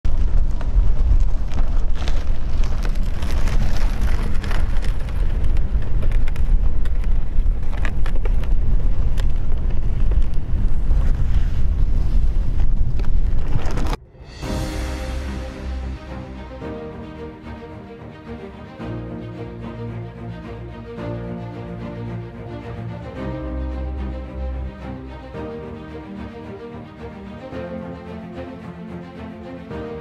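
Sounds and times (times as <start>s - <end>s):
wind buffeting microphone: 0.1s - 14.0s.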